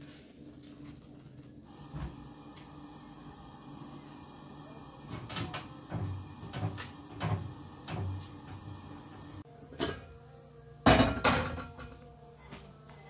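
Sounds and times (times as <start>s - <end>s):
cookware knocking on stove: 10.9s - 11.9s.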